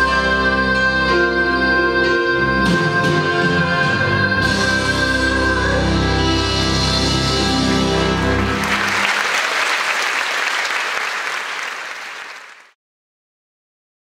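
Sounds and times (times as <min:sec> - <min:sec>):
audience applause: 0:07.9 - 0:12.8.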